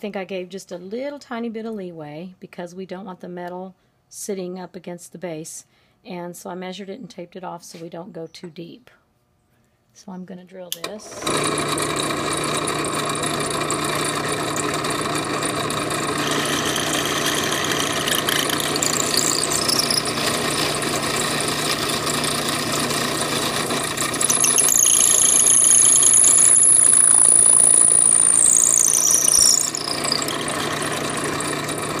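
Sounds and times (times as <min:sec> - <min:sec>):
drill press boring into wood: 0:11.0 - 0:32.0
high-pitched squeal: 0:16.2 - 0:32.0.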